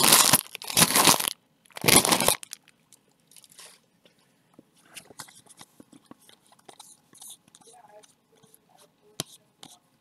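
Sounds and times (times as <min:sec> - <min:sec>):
foil crinkling: 0:00.0 - 0:02.7
foil wrapper ripping and crackling: 0:00.0 - 0:02.7.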